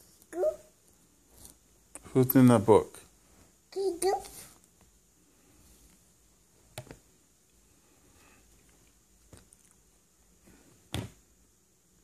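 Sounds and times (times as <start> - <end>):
taps and knocks on cardboard book: 10.9 - 11.2.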